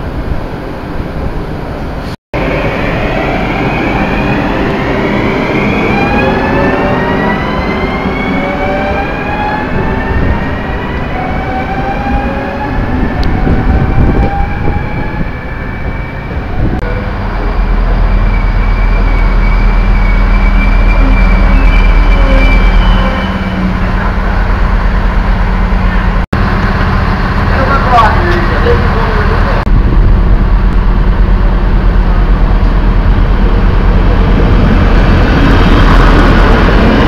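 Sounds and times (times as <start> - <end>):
rumble of train wheels: 0.0 - 37.0
diesel railcar idling drone: 23.6 - 36.9.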